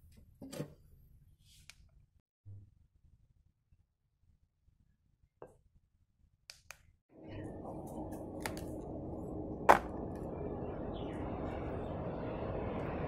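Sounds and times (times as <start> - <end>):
rumbling background noise: 7.2 - 13.0.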